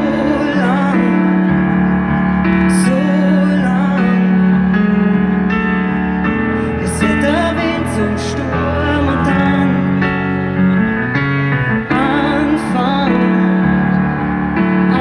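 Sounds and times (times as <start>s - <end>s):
live band pop ballad: 0.0s - 15.0s.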